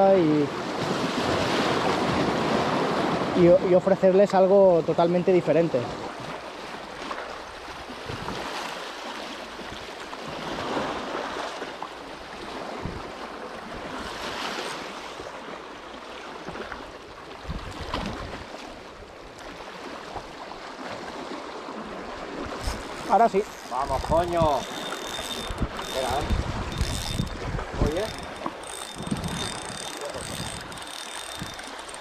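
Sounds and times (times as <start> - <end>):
sea waves washing ashore: 0.0 - 32.0
wind buffeting microphone: 22.3 - 31.9.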